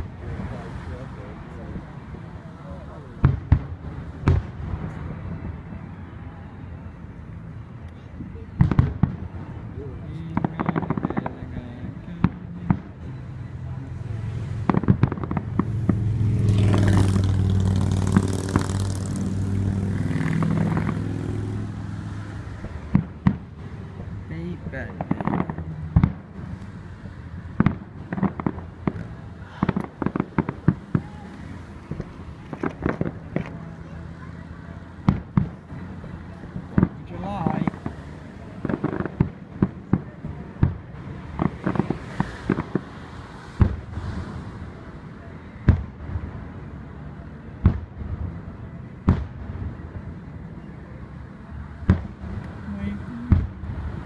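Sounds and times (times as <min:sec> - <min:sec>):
firework bangs and crackles: 0:00.0 - 0:54.0
vehicle engine humming: 0:00.0 - 0:54.0.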